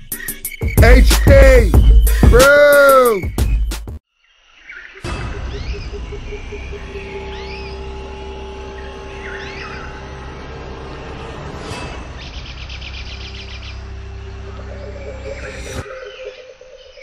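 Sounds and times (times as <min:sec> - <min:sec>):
birds whistling calls: 0:00.0 - 0:03.9, 0:04.6 - 0:10.7, 0:12.2 - 0:17.0
low drone: 0:05.0 - 0:16.4.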